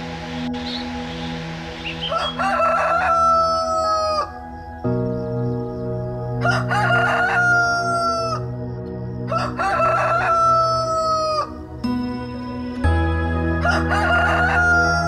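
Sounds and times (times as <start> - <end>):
rooster crowing: 2.0 - 4.5, 6.4 - 8.4, 9.3 - 11.6, 13.6 - 15.0.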